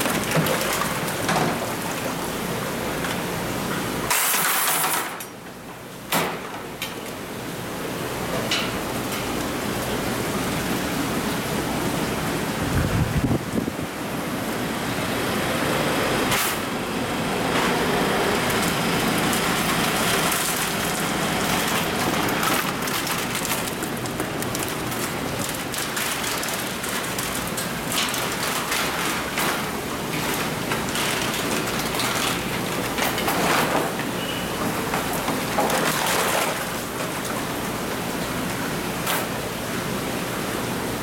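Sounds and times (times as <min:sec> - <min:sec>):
plastic baskets knocking and splashing: 0:00.0 - 0:05.2, 0:17.6 - 0:39.5
water rushing in tanks: 0:00.0 - 0:41.0.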